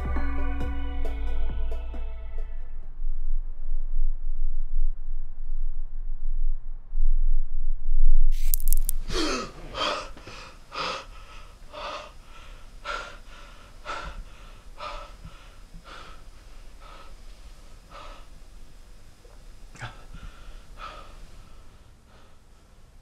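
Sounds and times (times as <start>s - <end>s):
low rumble: 1.4s - 22.5s
man gasping and panting: 9.0s - 18.3s, 19.8s - 22.4s.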